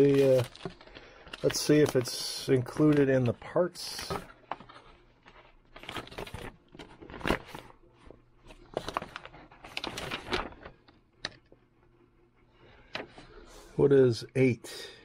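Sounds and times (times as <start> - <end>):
paper rustling: 0.0 - 11.5.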